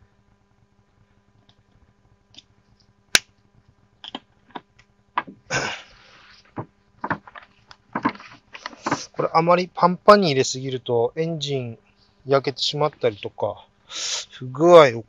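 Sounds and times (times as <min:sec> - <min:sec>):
cloth rustling: 0:06.0 - 0:09.3.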